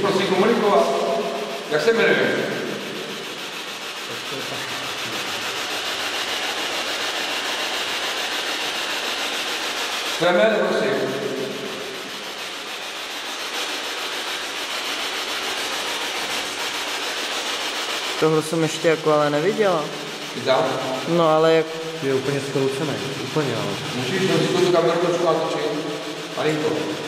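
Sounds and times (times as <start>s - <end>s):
steady hissing: 0.0s - 27.0s.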